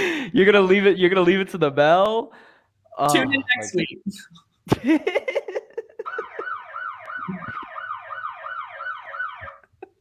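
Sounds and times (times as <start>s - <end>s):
warbling electronic alarm: 6.0s - 9.6s.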